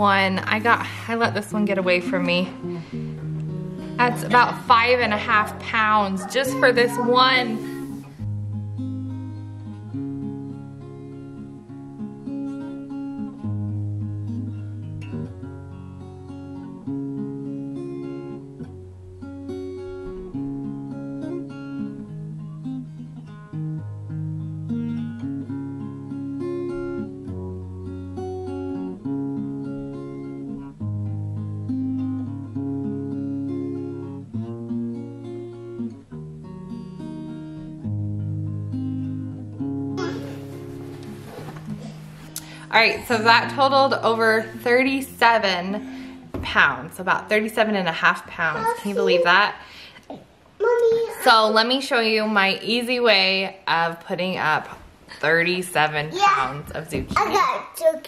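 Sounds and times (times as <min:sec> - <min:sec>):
acoustic guitar chords: 0:00.0 - 0:49.9.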